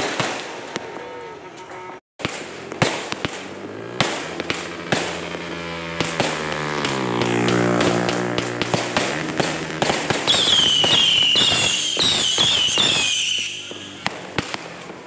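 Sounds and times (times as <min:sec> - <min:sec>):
fireworks bangs and crackling: 0:00.0 - 0:01.1, 0:02.2 - 0:15.0.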